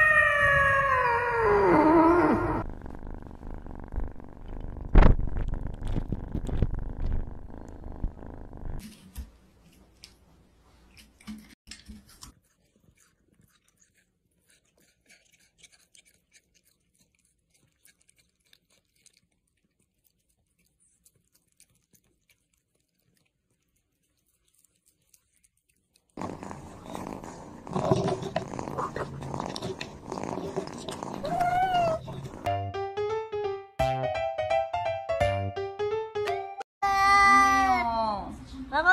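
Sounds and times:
kitten purring: 0.3s - 8.8s, 26.1s - 32.5s.

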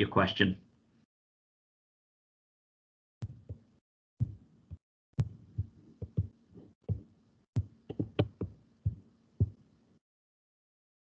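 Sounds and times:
dull thumps: 3.2s - 9.6s.

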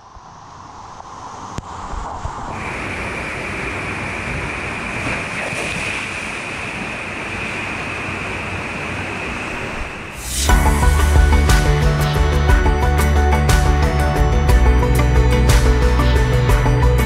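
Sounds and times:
music: 10.2s - 17.0s.

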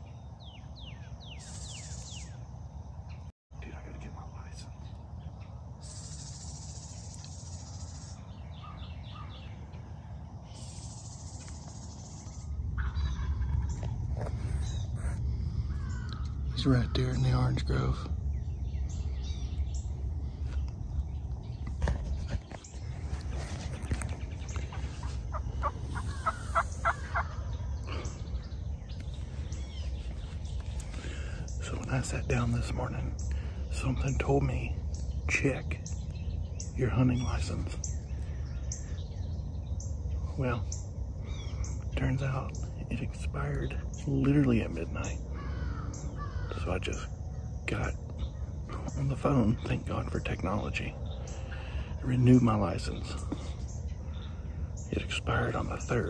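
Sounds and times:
bird chirps: 0.0s - 56.0s
low rumble: 2.8s - 44.0s
insect trilling: 5.7s - 8.3s, 10.3s - 20.0s, 23.3s - 56.0s
turkey yelps: 12.8s - 13.9s, 25.0s - 27.5s.

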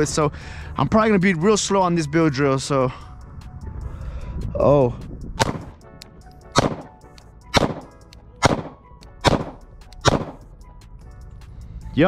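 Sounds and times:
pistol shots echoing: 5.4s - 5.7s, 6.6s - 10.4s.

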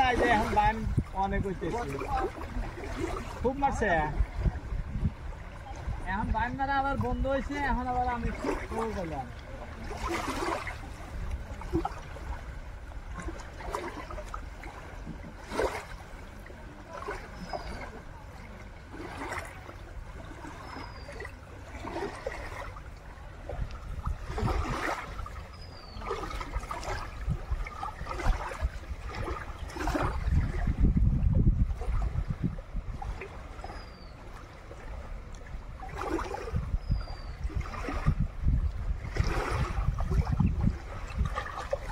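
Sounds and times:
small water splashes: 0.0s - 41.9s
water lapping against rocks: 0.0s - 41.9s.

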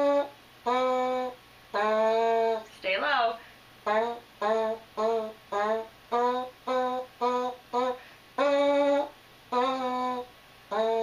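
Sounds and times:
buzzed horn mouthpiece notes: 0.0s - 2.5s, 3.9s - 11.0s.

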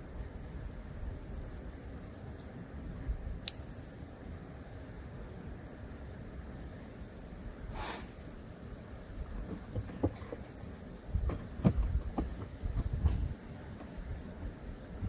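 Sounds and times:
wind on microphone: 11.1s - 13.4s.

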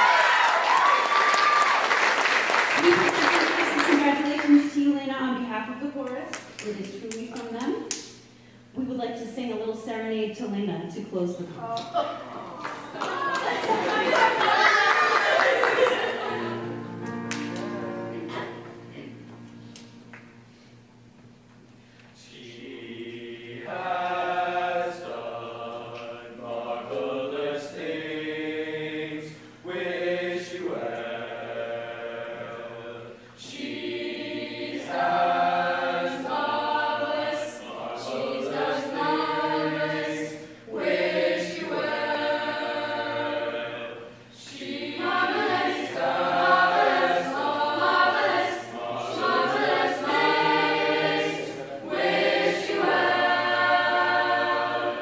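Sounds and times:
choir singing in harmony: 12.9s - 19.2s, 22.2s - 55.0s.

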